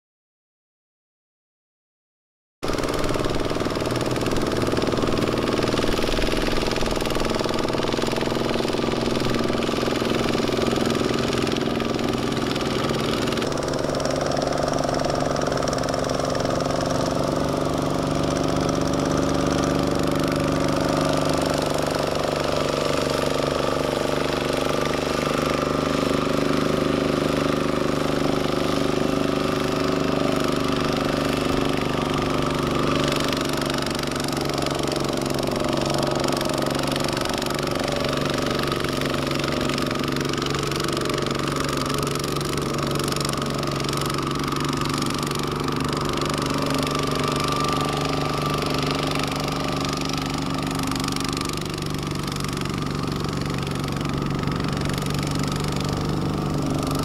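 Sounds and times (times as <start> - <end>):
diesel engine running under load: 2.6 - 57.0.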